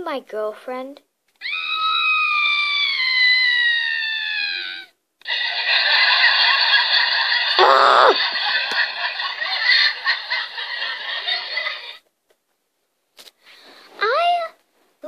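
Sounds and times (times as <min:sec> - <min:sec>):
harsh noisy shriek: 0:01.4 - 0:04.9, 0:07.6 - 0:08.2.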